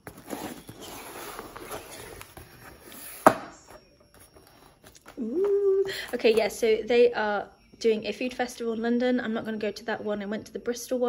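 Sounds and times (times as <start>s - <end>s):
cardboard rustling and scraping: 0.0s - 5.2s.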